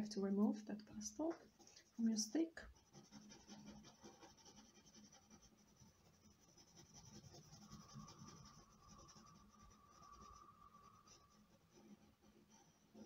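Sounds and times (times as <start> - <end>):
stick scratching paper: 2.6 - 13.0.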